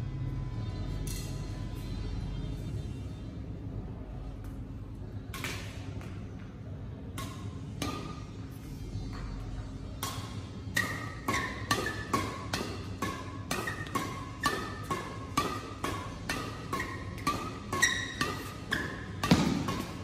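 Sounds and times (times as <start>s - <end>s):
rackets hitting shuttlecock: 5.3s - 6.2s, 7.1s - 8.4s, 10.0s - 20.0s.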